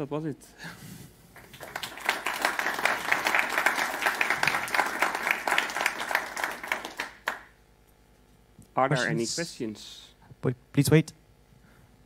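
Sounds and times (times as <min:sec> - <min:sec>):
audience applauding: 0:01.4 - 0:07.5.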